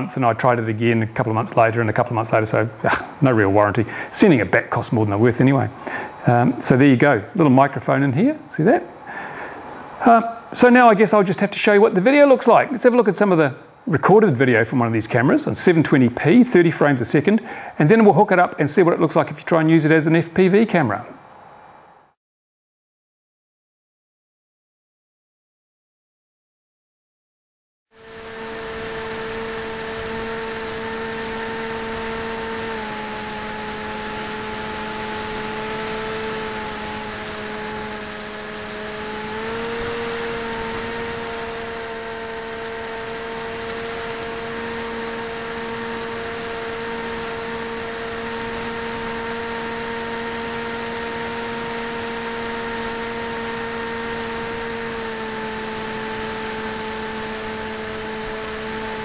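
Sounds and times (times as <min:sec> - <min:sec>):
electric motor buzzing whine: 0:27.9 - 0:59.0.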